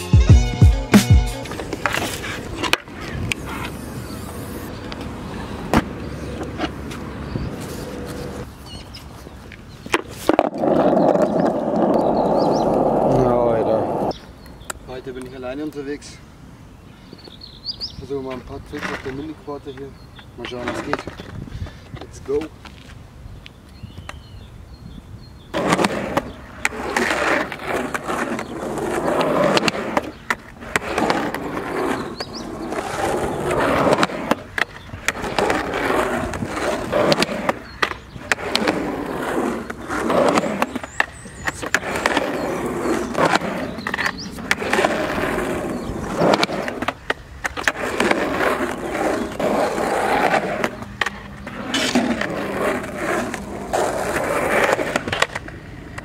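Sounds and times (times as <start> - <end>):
skateboard wheels rolling on asphalt: 1.0 - 56.0
skateboard clacking on ground: 1.4 - 8.8, 9.4 - 15.9, 25.5 - 56.0.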